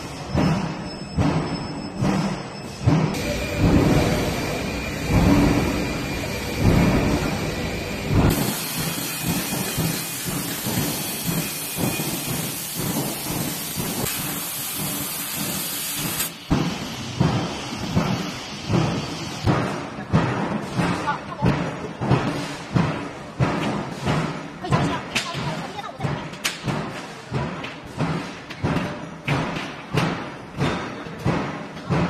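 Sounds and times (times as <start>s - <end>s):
low rumbling thuds: 3.2s - 8.4s.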